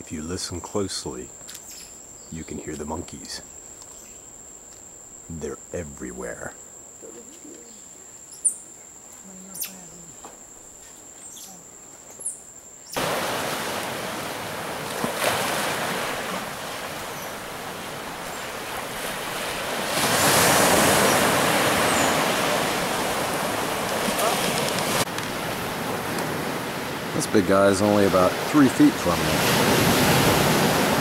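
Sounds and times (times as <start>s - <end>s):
insect whine: 0.0s - 31.0s
ocean surf washing on beach: 13.0s - 31.0s.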